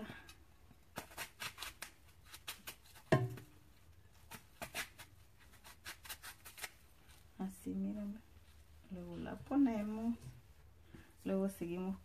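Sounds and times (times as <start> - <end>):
knife slicing apple: 0.9 - 3.5, 4.1 - 6.9.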